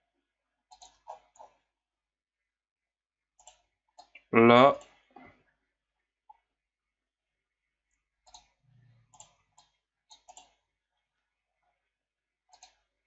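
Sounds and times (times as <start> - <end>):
mouse and keyboard clicks: 0.7 - 1.6, 8.3 - 10.6, 12.5 - 12.9.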